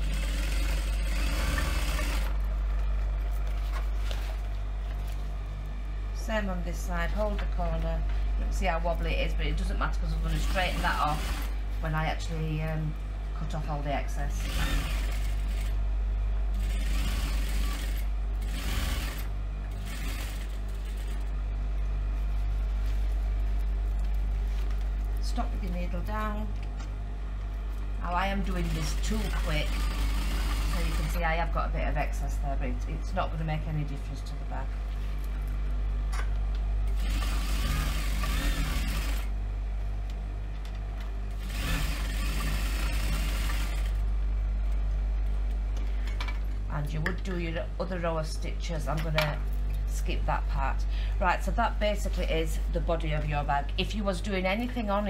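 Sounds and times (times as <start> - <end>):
sewing machine stitching: 0.0 - 2.4, 14.4 - 15.7, 16.6 - 21.2, 28.5 - 31.2, 36.9 - 39.3, 41.4 - 44.0
sewing machine motor hum: 0.0 - 5.6, 8.1 - 12.3, 13.7 - 26.3, 27.7 - 31.6, 36.8 - 39.4, 41.2 - 44.8.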